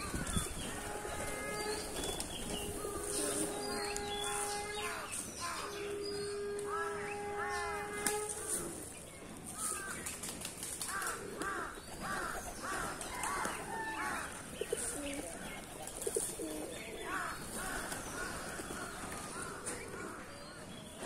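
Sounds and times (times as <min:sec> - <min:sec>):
pigeons flapping wings: 0:01.1 - 0:02.8, 0:09.8 - 0:14.0.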